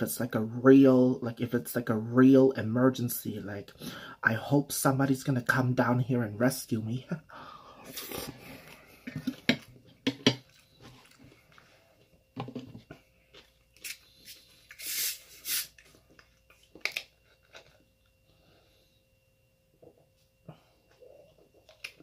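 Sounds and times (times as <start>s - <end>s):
chewing food: 10.4s - 11.7s
plastic bottle opening hiss: 13.8s - 15.9s.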